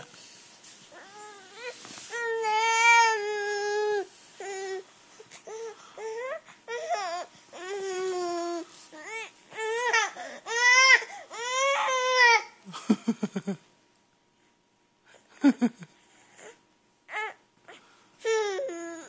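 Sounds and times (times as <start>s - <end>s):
infant crying: 0.9s - 4.8s, 5.4s - 12.5s, 16.4s - 17.4s.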